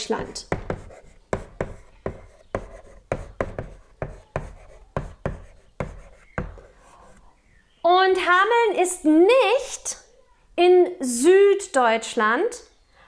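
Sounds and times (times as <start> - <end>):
chalk writing on a blackboard: 0.4 - 7.3.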